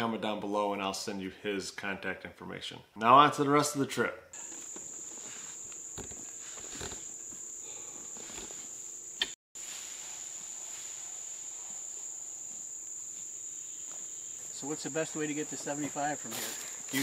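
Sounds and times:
insects singing high-pitched drone: 0:04.4 - 0:09.4, 0:10.1 - 0:17.0.

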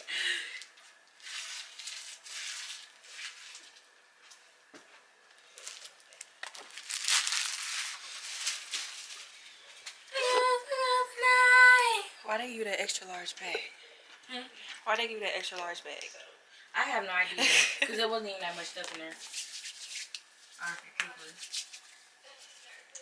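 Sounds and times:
bag crinkling and rustling: 0:00.9 - 0:03.9, 0:05.5 - 0:09.5.

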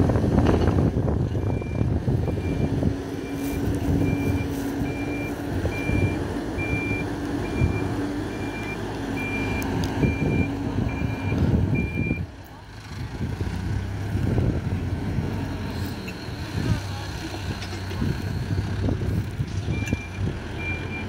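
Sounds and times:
diesel engine running: 0:00.0 - 0:21.0
reversing alarm beeping: 0:01.4 - 0:12.2, 0:19.7 - 0:21.0.

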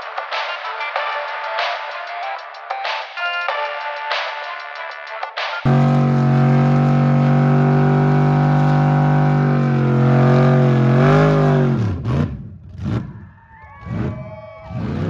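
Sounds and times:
truck engine revving high: 0:05.7 - 0:13.2, 0:13.8 - 0:15.0.

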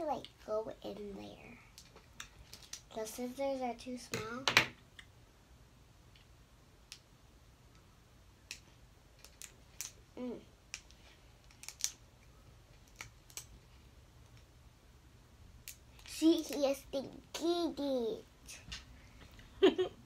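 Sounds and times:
crab shell cracking: 0:10.7 - 0:12.0.

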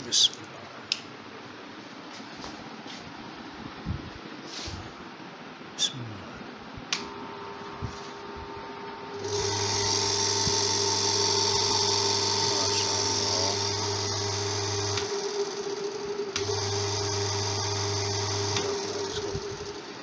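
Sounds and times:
electric fan motor humming: 0:00.0 - 0:20.0
higher whir: 0:06.7 - 0:20.0.

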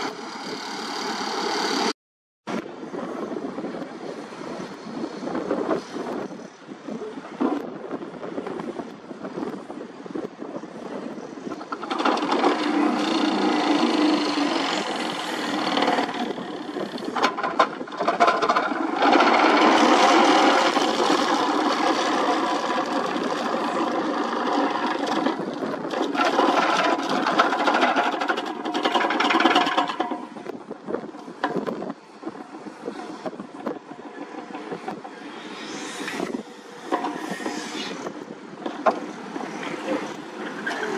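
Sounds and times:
vibratory pile hammer buzzing: 0:11.9 - 0:30.4.

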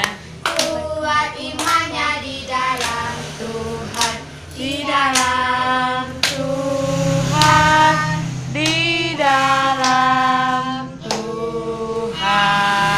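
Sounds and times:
hands clapping: 0:00.0 - 0:00.8, 0:01.5 - 0:01.9, 0:02.7 - 0:03.1, 0:03.9 - 0:04.2, 0:05.1 - 0:05.4, 0:06.2 - 0:06.4, 0:11.0 - 0:11.3
children singing together: 0:00.0 - 0:12.9.

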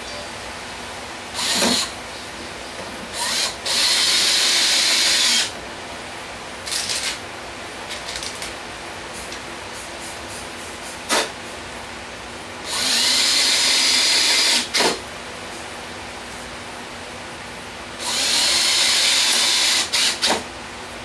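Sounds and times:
cordless drill running: 0:01.4 - 0:01.9, 0:03.2 - 0:05.5, 0:12.7 - 0:14.9, 0:18.0 - 0:20.4.

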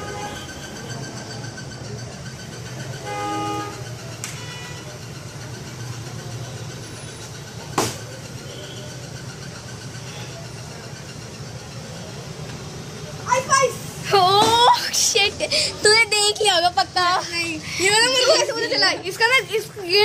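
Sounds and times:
vehicle horn: 0:00.0 - 0:00.6, 0:03.0 - 0:05.0
street traffic hum: 0:00.0 - 0:20.0.

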